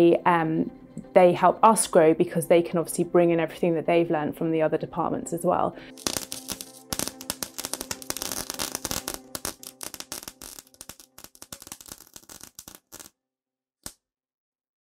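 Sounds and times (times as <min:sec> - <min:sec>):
sparks crackling and snapping: 0:05.9 - 0:13.1.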